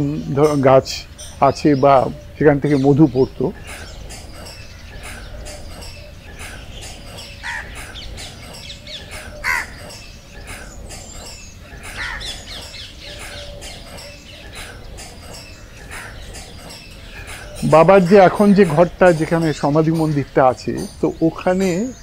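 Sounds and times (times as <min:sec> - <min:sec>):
small birds chirping: 0:00.0 - 0:22.0
crow cawing: 0:03.4 - 0:19.4.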